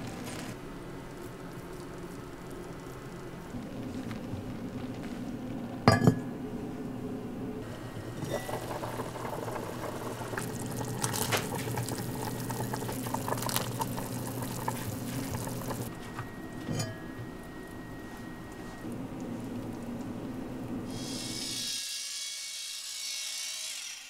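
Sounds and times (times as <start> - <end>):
soup boiling and bubbling: 1.0 - 5.9, 7.6 - 17.6
lid knocking on pot: 5.9 - 6.2.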